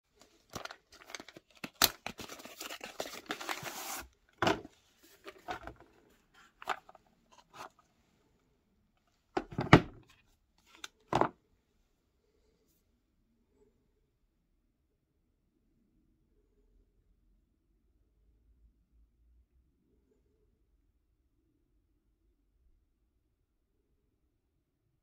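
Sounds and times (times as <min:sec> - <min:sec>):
cardboard box scraping and rustling: 0:02.1 - 0:05.8
gift box clicks and knocks: 0:09.4 - 0:10.0.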